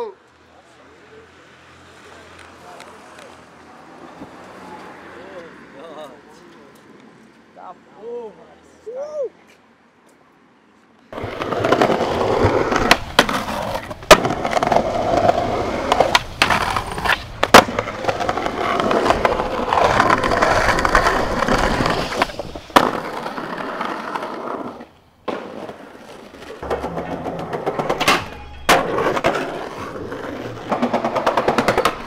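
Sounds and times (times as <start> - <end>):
skateboard wheels rolling: 11.0 - 32.0
skateboard clacks: 11.1 - 32.0.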